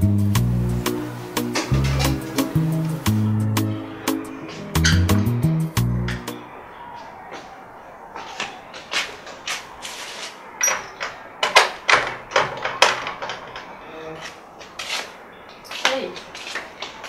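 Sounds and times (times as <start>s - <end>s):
footsteps: 4.1s - 5.2s, 6.0s - 17.0s
wooden gate knocks and clatters: 10.6s - 13.8s.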